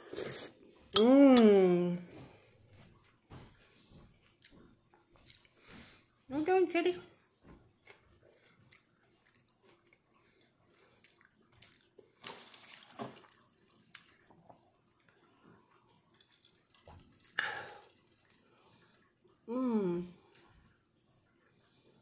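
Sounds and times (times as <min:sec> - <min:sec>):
person chewing: 0:00.0 - 0:01.1, 0:04.1 - 0:05.8, 0:07.8 - 0:19.1.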